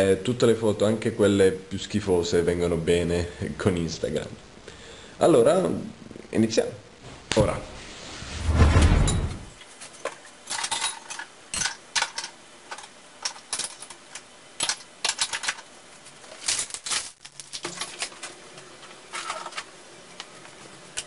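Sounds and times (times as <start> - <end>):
dishes and utensils clattering: 10.4 - 14.0.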